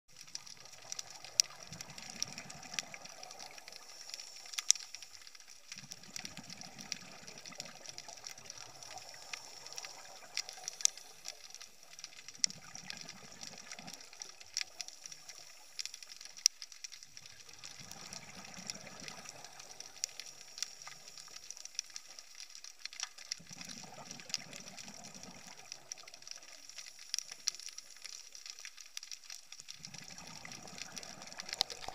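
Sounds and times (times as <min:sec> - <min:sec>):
faint hiss: 0:00.1 - 0:31.9
underwater exhalation bubbles: 0:29.8 - 0:31.9.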